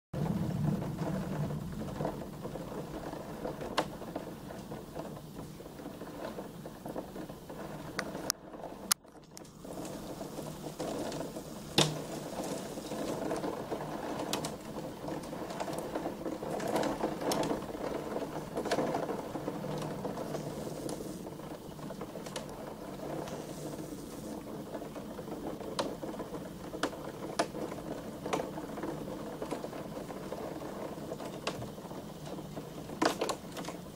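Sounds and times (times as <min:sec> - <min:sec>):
hail and rain on window glass: 0:00.2 - 0:33.9
hailstone knocks: 0:09.8 - 0:16.1.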